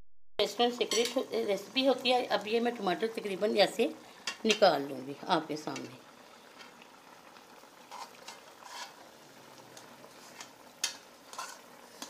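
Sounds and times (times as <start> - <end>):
faint sizzle from a pot: 0.4 - 12.0
spoon scraping in a steel pot: 7.8 - 9.1, 10.1 - 12.0.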